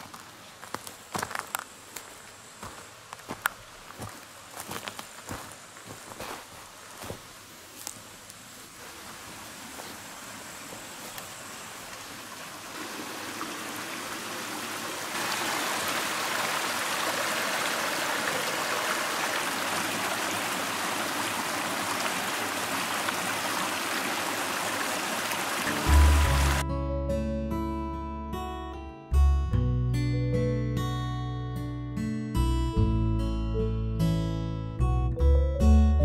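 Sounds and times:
stream running over rocks: 0:00.0 - 0:26.6.

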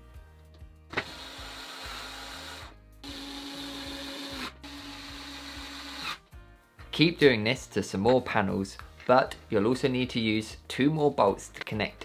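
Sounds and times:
cordless screwdriver motor running: 0:01.0 - 0:06.2.

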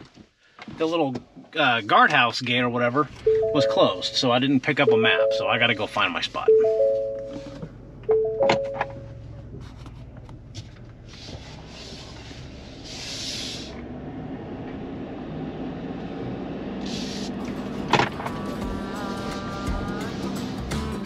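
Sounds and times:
truck engine and tyre rumble: 0:00.0 - 0:21.0
three-tone dashboard chime: 0:03.3 - 0:09.2.

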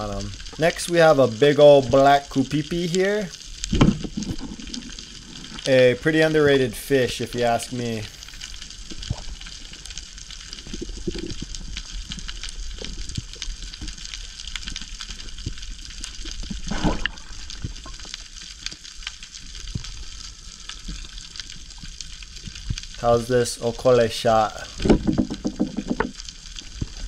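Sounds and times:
underwater rumble of moving water: 0:00.0 - 0:27.0
rush of water: 0:15.4 - 0:18.0.

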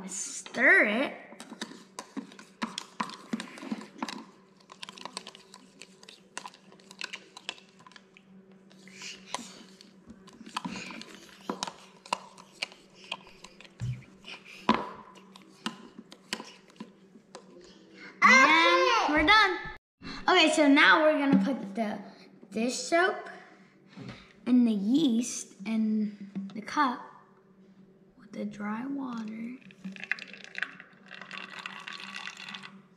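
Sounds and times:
metal spoon scraping plastic cup: 0:01.6 - 0:08.0.

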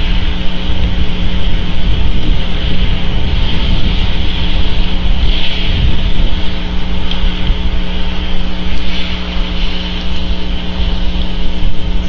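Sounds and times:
electrical hum: 0:00.0 - 0:12.0
wavering low rumble: 0:00.0 - 0:12.0
hiss: 0:02.2 - 0:11.7.

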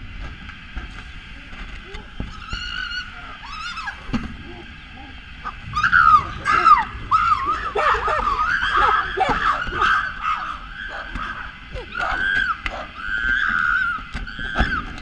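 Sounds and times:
chimpanzees calling: 0:01.9 - 0:14.7.

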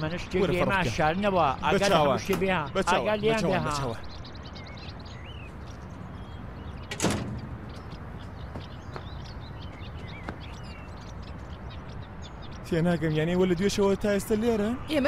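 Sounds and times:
sheet-metal door banging shut: 0:06.8 - 0:07.8.

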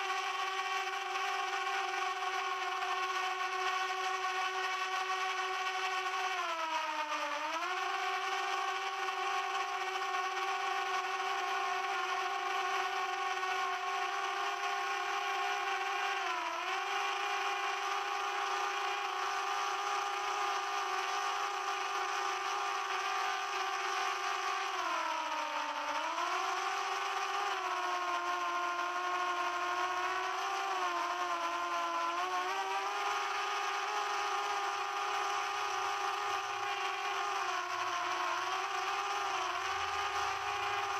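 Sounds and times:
drone propellers whining: 0:00.0 - 0:40.9.

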